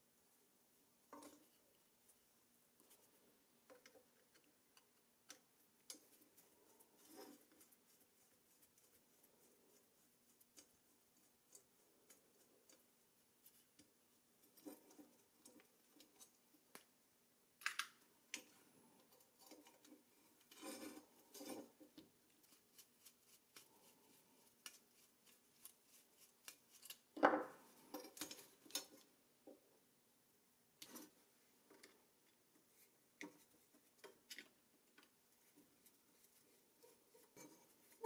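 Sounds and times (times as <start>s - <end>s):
screwdriver clicks and scrapes on metal: 17.6s - 21.7s, 24.6s - 27.1s, 27.8s - 29.1s.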